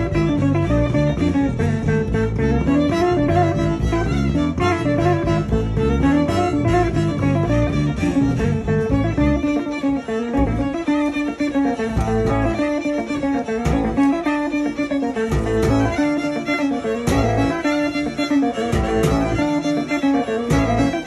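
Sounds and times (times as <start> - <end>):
pulsing beat: 0.0 - 9.5, 15.3 - 21.0
electric bass: 0.0 - 21.0
plucked string instrument: 0.0 - 21.0
violin melody: 0.0 - 21.0.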